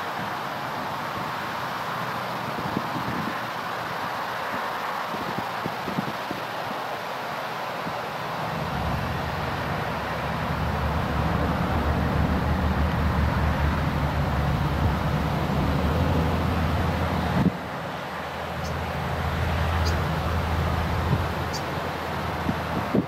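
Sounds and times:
diesel truck driving past: 8.4 - 22.8.

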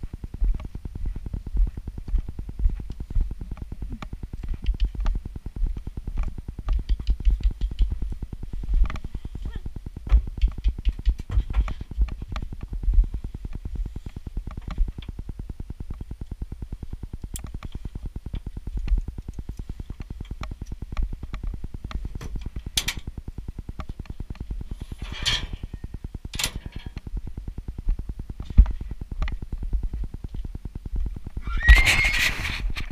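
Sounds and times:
fluttering low rumble: 0.0 - 32.9
hooves and trailer thuds: 10.0 - 13.7.

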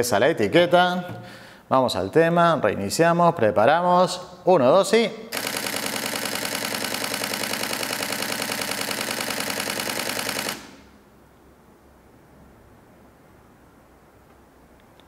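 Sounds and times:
camera shutter burst clattering: 5.3 - 10.9.

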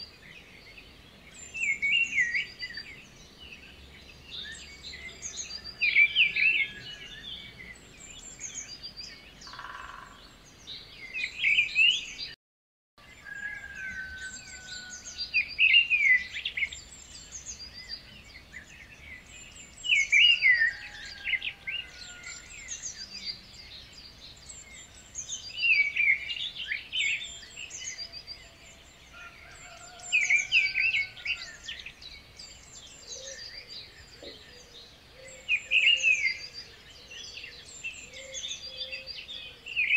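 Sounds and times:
birds chirping and trilling: 0.0 - 12.4, 13.0 - 39.9.

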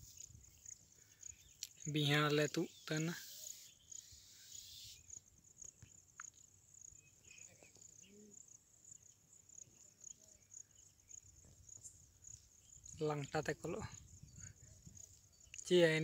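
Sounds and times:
insects chirping: 0.0 - 16.0.

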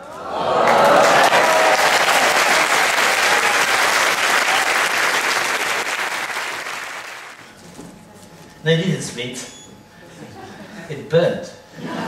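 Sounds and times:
crowd applause: 0.0 - 7.4.

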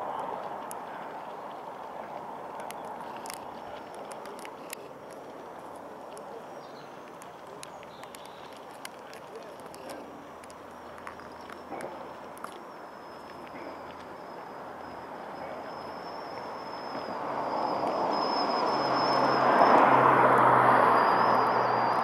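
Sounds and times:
vehicle passing: 8.5 - 22.0
faint high whistle: 12.6 - 22.0.

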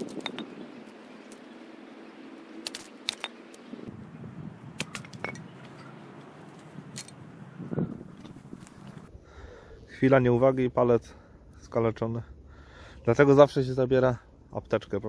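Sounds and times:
knife splitting wood: 2.6 - 3.6, 4.8 - 5.8.

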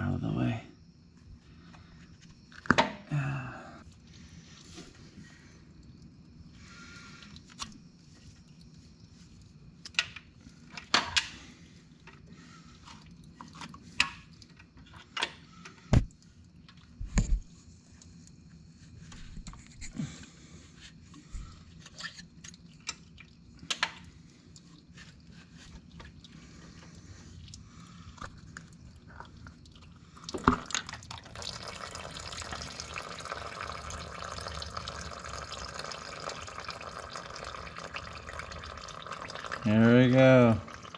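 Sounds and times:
oil pouring into pan: 29.2 - 40.9.

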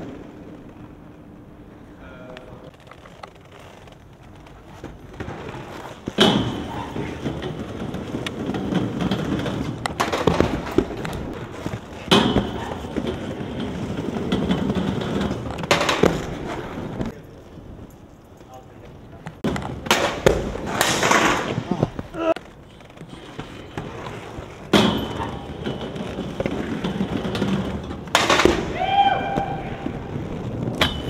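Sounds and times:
skateboard wheels rolling on concrete: 0.0 - 31.0
skateboard impacts: 4.0 - 17.2, 19.2 - 31.0
board clattering on metal rail: 4.9 - 17.2, 19.4 - 21.7, 23.2 - 28.8, 30.6 - 31.0.

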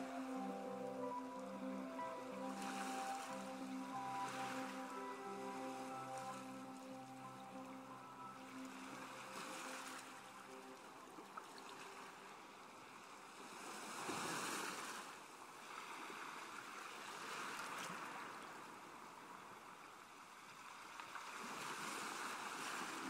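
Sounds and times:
sea surf rushing: 0.0 - 10.6.

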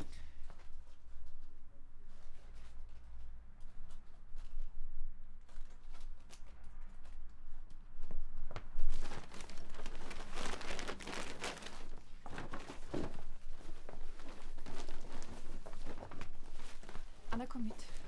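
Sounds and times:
bags and clothing rustling: 8.6 - 18.0.

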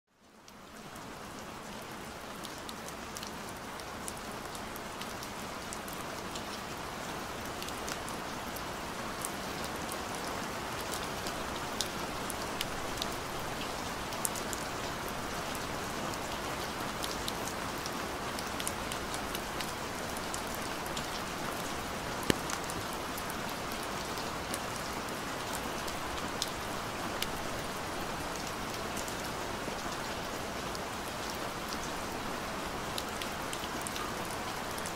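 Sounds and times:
steady rain falling: 0.1 - 34.9
single raindrops ticking: 22.2 - 22.7.

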